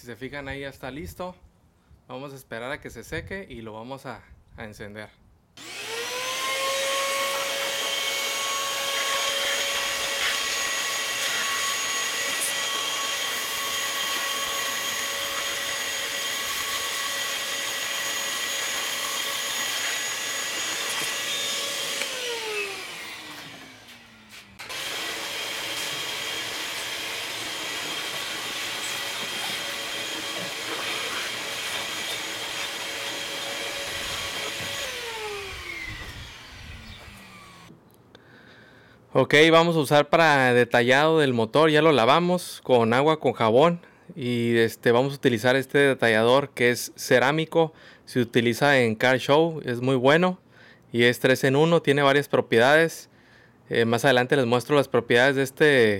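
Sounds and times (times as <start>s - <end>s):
air blower whining: 5.6s - 37.7s.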